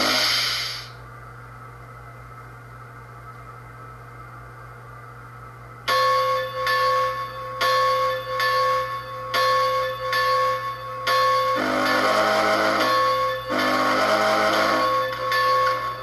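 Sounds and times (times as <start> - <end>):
faint steady hum: 0.0 - 16.0
locomotive bell ringing from speaker: 5.9 - 16.0.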